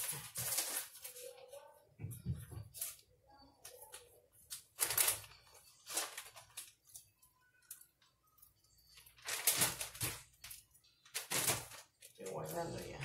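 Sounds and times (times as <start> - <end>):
plastic bag crinkling: 0.0 - 1.6, 2.7 - 13.0.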